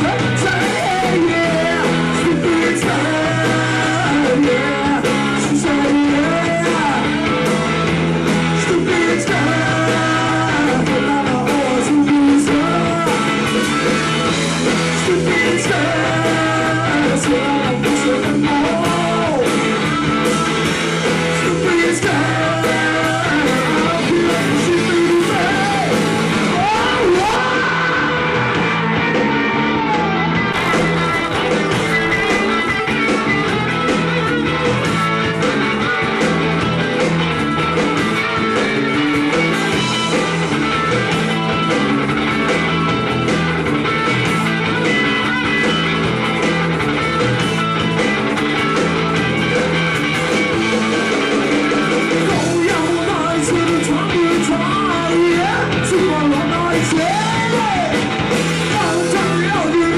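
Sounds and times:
man singing: 0.0 - 7.5, 8.5 - 28.4, 51.8 - 59.9
rock band playing: 0.0 - 59.9.

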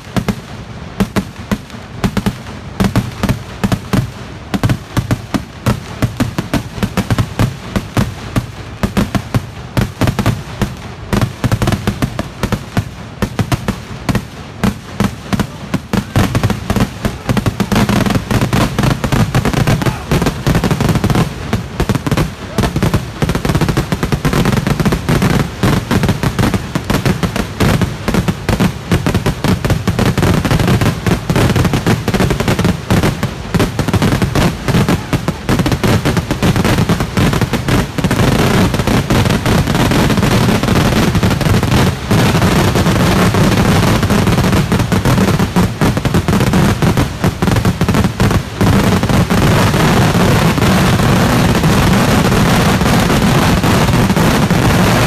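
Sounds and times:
firecrackers crackling: 0.0 - 55.0.

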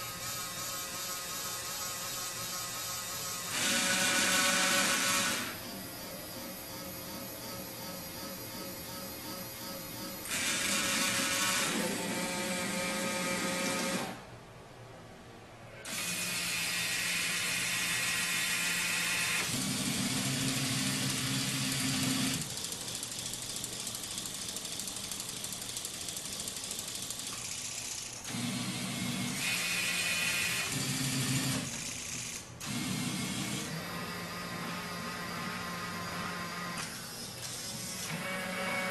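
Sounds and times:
small electric motors whirring: 0.0 - 6.1, 15.8 - 23.4.

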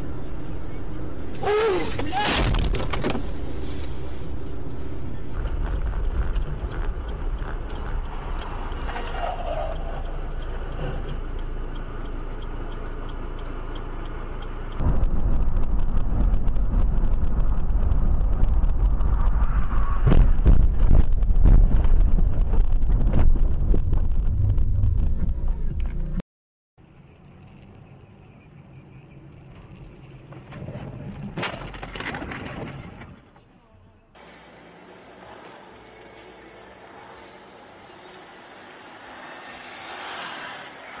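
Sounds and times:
low rumble with rapid crackle: 0.0 - 12.2, 14.4 - 26.2
in-car road and engine noise: 0.0 - 26.2, 26.8 - 41.0
rising and falling squeal: 8.0 - 10.6, 34.3 - 41.0.

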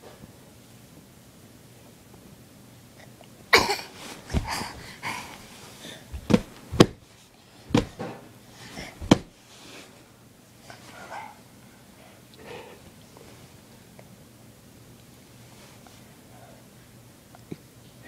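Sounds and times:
sharp bumps and knocks: 3.6 - 5.3, 6.1 - 7.0, 7.7 - 8.2, 8.8 - 9.3
child's breathy sounds: 4.3 - 6.1.

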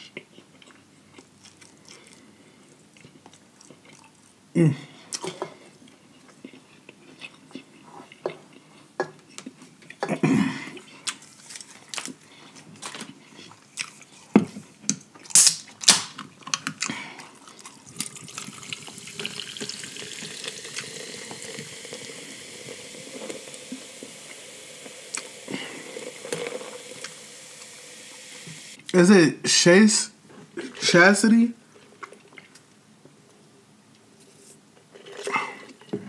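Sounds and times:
sharp clicks and smacks: 14.9 - 16.8
drink poured into a glass jar: 17.8 - 28.4.

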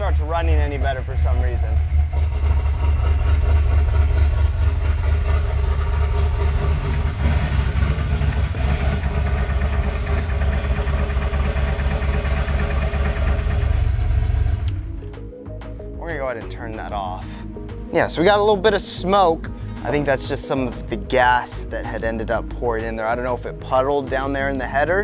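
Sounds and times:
car engine idling rough: 0.0 - 15.1.

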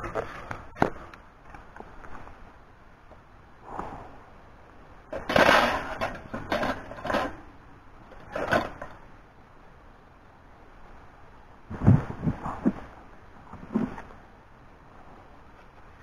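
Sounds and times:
metal grill clanking and scraping: 5.2 - 7.4.

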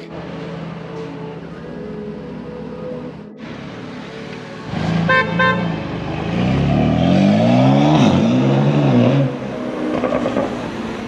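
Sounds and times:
car engine accelerating: 3.1 - 11.0
car horn toots: 5.1 - 5.7.

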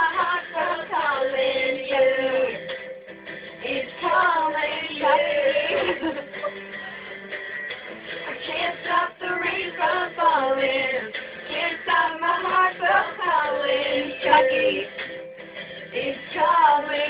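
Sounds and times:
girls singing along: 0.0 - 2.8, 3.6 - 6.4, 8.2 - 15.1, 15.8 - 17.0
pop song with female vocals: 0.0 - 2.9, 3.6 - 6.3, 8.2 - 15.1, 15.8 - 17.0.

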